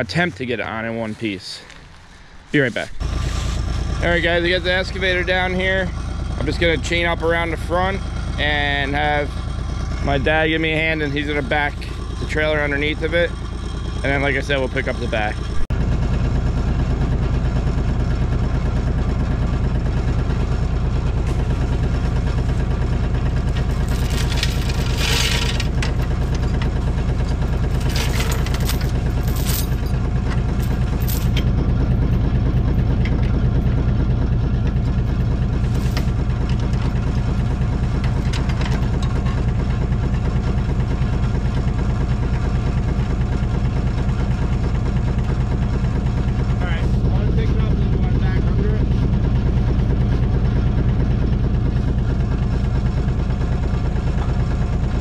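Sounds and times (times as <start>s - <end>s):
excavator engine running: 0.0s - 55.0s.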